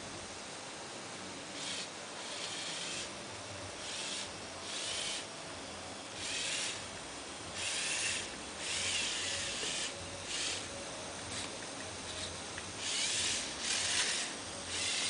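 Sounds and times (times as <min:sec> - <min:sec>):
toy motors whirring in raspy bursts: 0:01.6 - 0:03.1, 0:03.8 - 0:05.3, 0:06.2 - 0:06.9, 0:07.5 - 0:10.7, 0:12.1 - 0:15.0.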